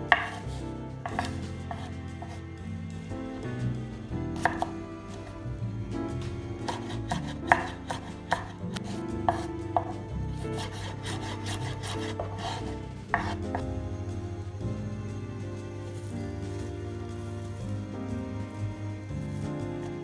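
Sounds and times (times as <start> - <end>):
knife chopping on wooden board: 0.1 - 2.4, 4.4 - 4.8, 6.6 - 10.0, 10.6 - 13.7.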